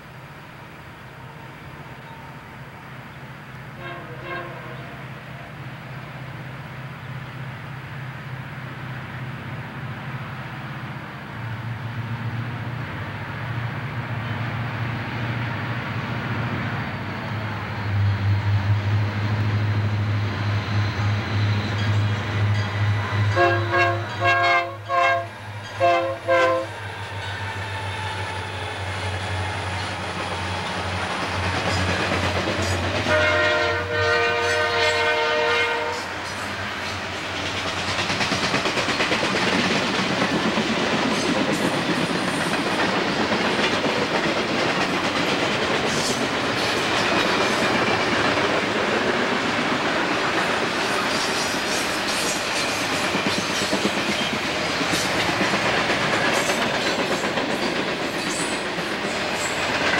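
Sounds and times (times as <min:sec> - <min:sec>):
locomotive air horn blasts: 0:03.8 - 0:05.0, 0:23.3 - 0:26.8, 0:33.1 - 0:36.1.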